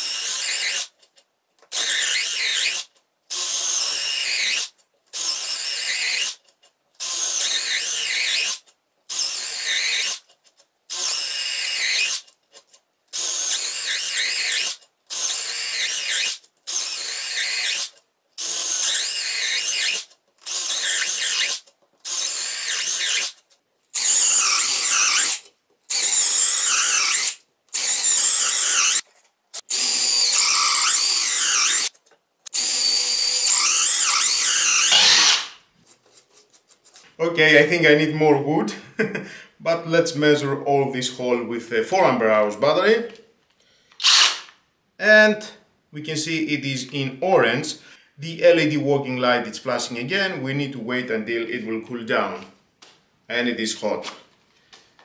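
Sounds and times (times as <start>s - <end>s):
cordless drill boring into wood: 0.0s - 0.9s, 1.7s - 6.4s, 7.0s - 10.2s, 10.9s - 12.2s, 13.2s - 23.4s, 24.0s - 29.0s, 29.6s - 31.9s, 32.5s - 35.6s, 44.0s - 44.5s.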